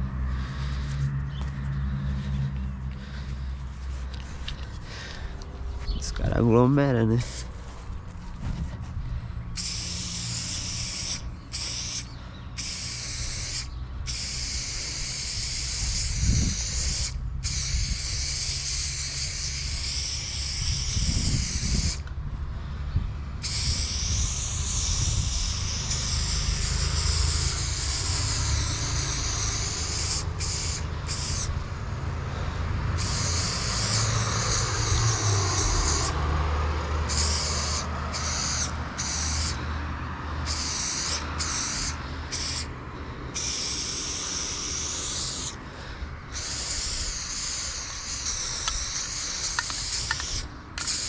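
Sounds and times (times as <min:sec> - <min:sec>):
low steady rumble: 0:00.0 - 0:10.2
spray paint can hissing: 0:07.2 - 0:07.6, 0:09.5 - 0:22.1, 0:23.4 - 0:31.6, 0:33.0 - 0:36.2, 0:37.0 - 0:39.6, 0:40.4 - 0:51.0.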